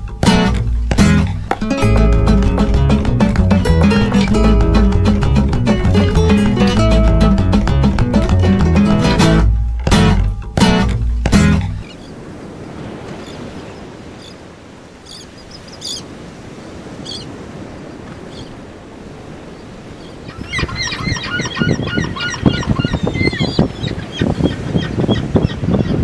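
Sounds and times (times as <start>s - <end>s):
flock of gulls calling: 11.8s - 18.8s, 19.4s - 26.0s
distant gull cries: 13.1s - 16.2s, 17.0s - 17.4s, 18.2s - 18.6s, 19.5s - 26.0s.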